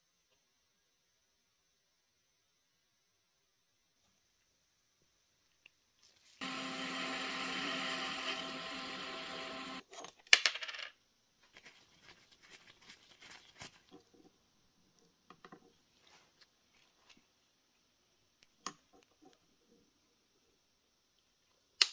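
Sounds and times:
lathe motor humming: 6.4s - 9.8s.

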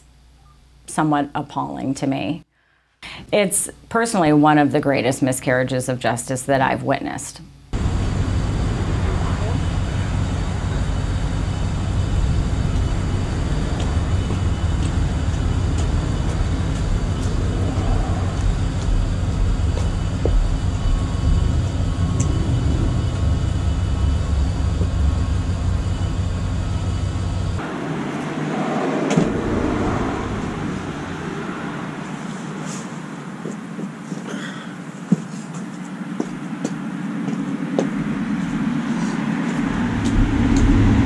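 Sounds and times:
deep rumble: 7.7s - 32.6s, 37.9s - 41.0s.

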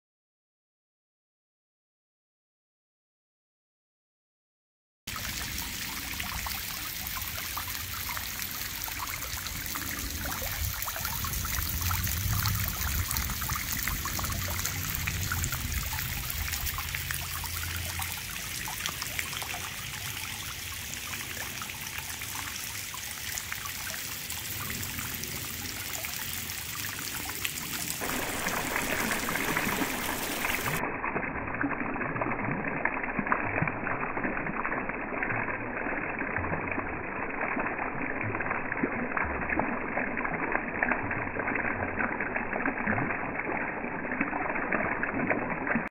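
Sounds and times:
water trickling down rain chain: 5.1s - 30.8s.

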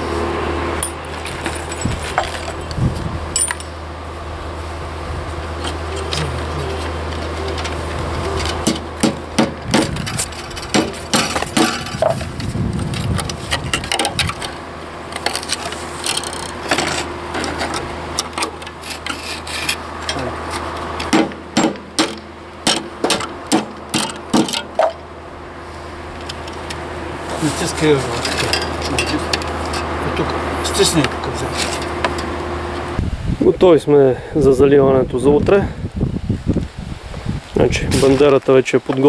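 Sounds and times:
low steady hum: 0.0s - 36.8s
metal clinks: 0.8s - 3.8s
hammer knocks: 8.6s - 10.0s, 10.7s - 12.1s, 21.1s - 24.9s.

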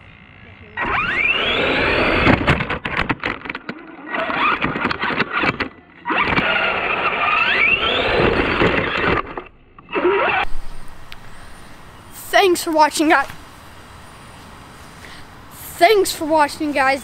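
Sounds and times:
rc car motor whining: 0.1s - 2.9s, 3.7s - 11.6s
knocks and rattles over bumps: 2.2s - 3.8s.

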